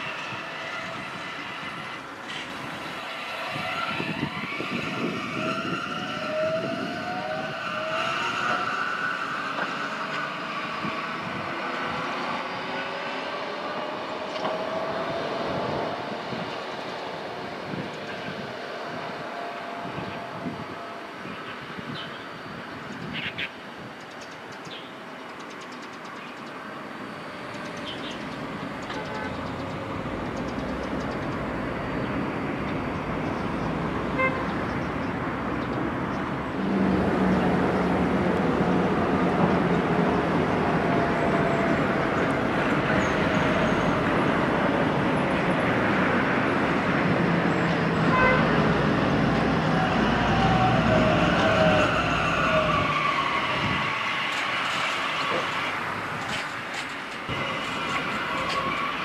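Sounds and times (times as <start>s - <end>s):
tram running past: 26.0s - 59.0s
tram horn toots: 28.9s - 29.7s, 34.1s - 34.9s, 48.0s - 48.8s.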